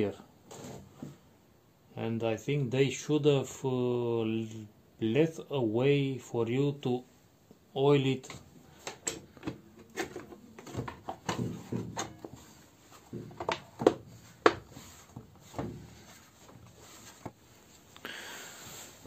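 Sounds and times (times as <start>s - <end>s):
plastic cover clicking and knocking: 8.2s - 15.8s.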